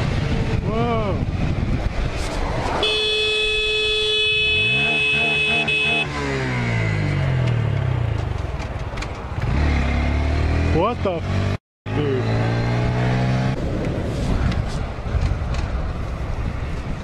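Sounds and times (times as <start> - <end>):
wind rushing: 0.0 - 4.7, 12.6 - 17.0
motorcycle engine revving: 0.0 - 14.0
motorcycle horn: 2.8 - 6.4.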